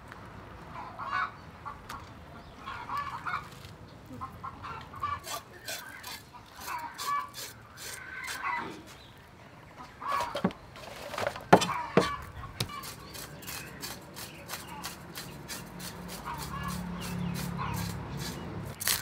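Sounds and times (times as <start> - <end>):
chickens clucking: 0.7 - 18.7.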